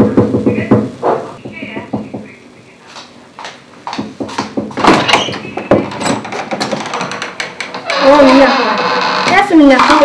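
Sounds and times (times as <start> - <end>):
door unlocking and opening: 4.8 - 10.0.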